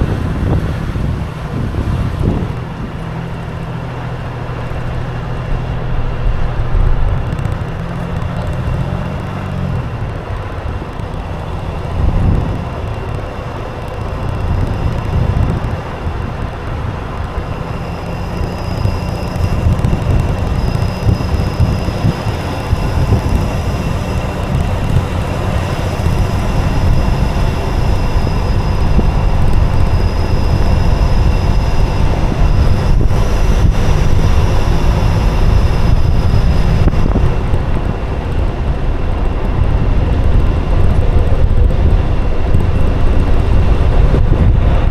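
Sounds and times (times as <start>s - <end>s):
engine rumble: 0.0s - 44.9s
thin high whine: 17.3s - 44.9s.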